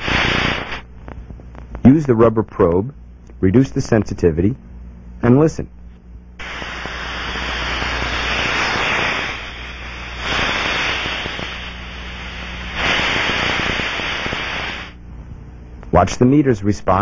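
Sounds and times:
air leak hiss with crackle: 0:00.0 - 0:02.8, 0:06.4 - 0:15.0.

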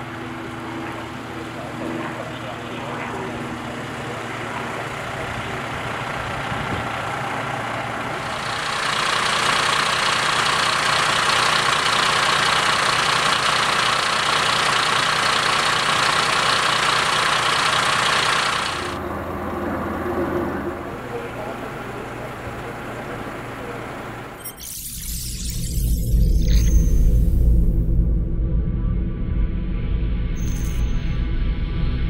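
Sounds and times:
diesel engine idling: 0:00.0 - 0:24.4.

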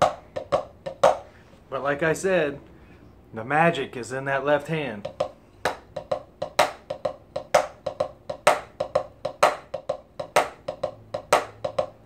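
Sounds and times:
drumstick strokes on practice pad: 0:00.0 - 0:01.4, 0:05.0 - 0:12.0.

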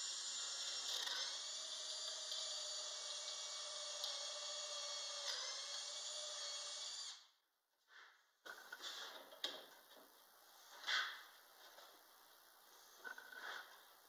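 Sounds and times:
cordless drill boring wood: 0:00.0 - 0:07.3.

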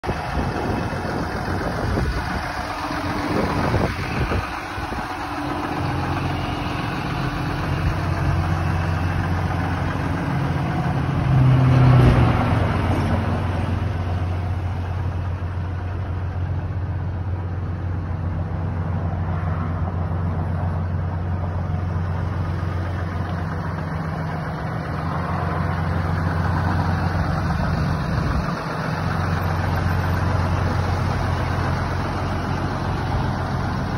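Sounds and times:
truck engine idling: 0:00.0 - 0:33.9.

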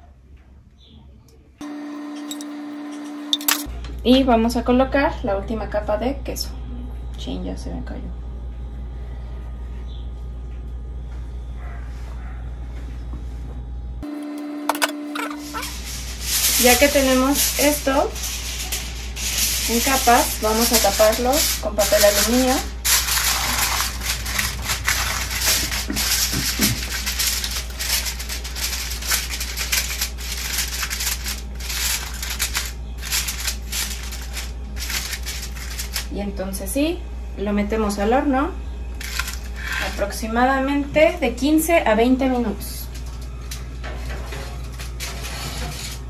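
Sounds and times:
aluminium foil crinkling: 0:14.8 - 0:36.3, 0:39.0 - 0:40.2, 0:42.9 - 0:46.0.

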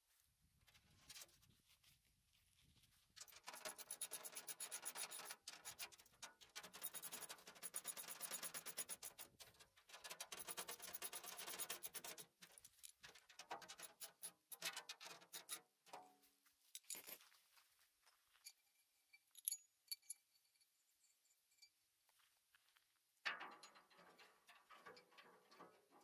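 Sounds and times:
metallic clicks and clinks: 0:16.8 - 0:17.3, 0:18.4 - 0:21.8.

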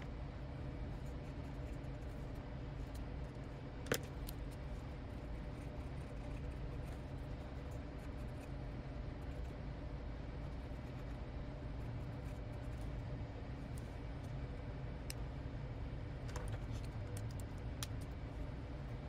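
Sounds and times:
low room hum: 0:00.0 - 0:19.0
pen scratching on paper: 0:05.1 - 0:08.5.

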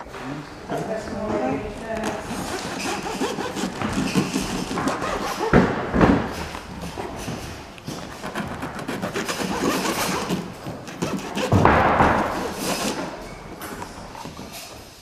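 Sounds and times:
bread knife sawing crusty bread: 0:02.3 - 0:05.5, 0:08.2 - 0:11.6.

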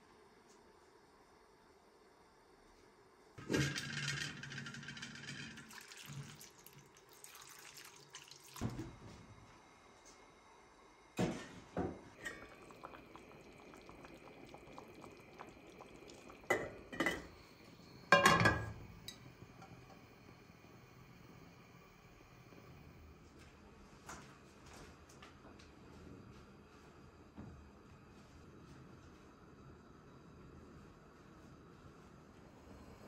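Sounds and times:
water poured from metal pitcher: 0:03.4 - 0:08.9, 0:12.2 - 0:20.0
metal pots and pans knocking: 0:18.1 - 0:19.2.

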